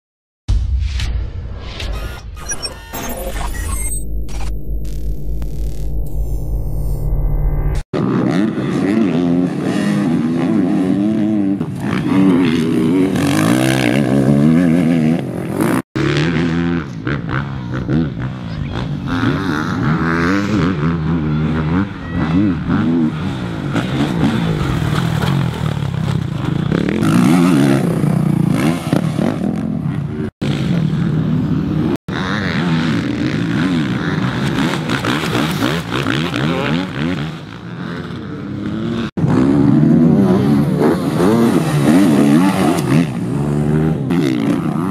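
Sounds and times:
dirt bike engine revving: 0:03.0 - 0:44.9.

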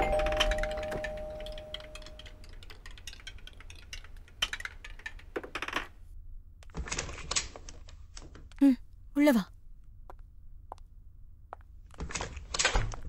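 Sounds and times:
doorbell chime: 0:00.0 - 0:02.3.

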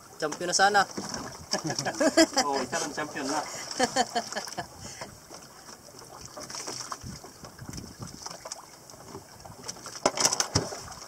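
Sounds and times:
water lapping against boat hull: 0:00.0 - 0:11.0
small knocks on boat: 0:00.2 - 0:02.1, 0:05.0 - 0:11.0.

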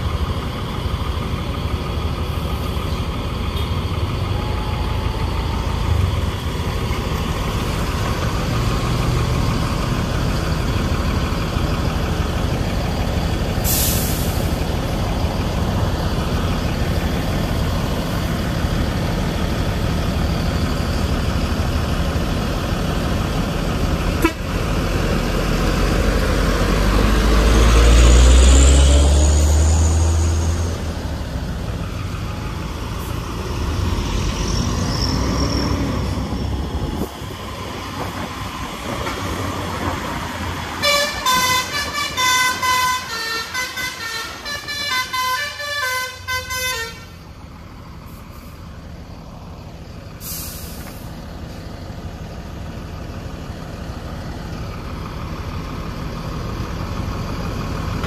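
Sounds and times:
diesel bus engine running: 0:00.0 - 0:58.0
air-brake hiss: 0:13.6 - 0:14.6, 0:50.2 - 0:51.2.

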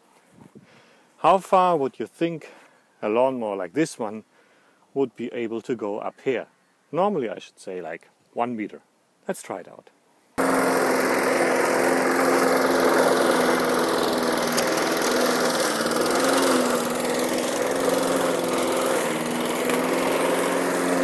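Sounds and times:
lawn mower engine running: 0:10.4 - 0:21.0.

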